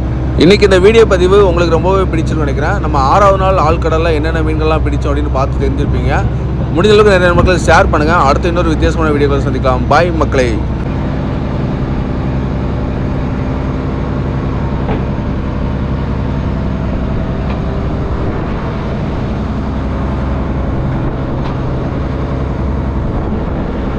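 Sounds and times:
boat diesel engine droning: 0:00.0 - 0:23.9.

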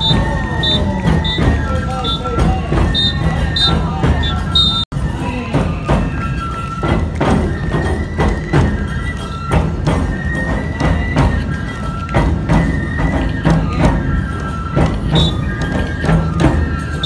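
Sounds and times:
flutes playing high notes: 0:00.0 - 0:17.0
large taiko drums: 0:00.0 - 0:17.0.

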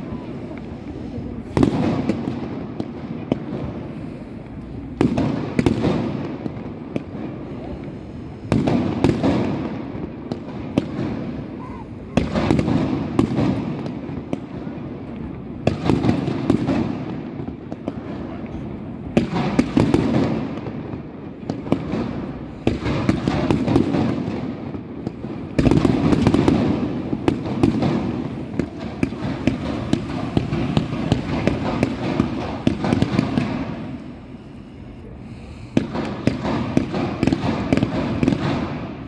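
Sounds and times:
fireworks crackling and banging: 0:00.0 - 0:39.0.

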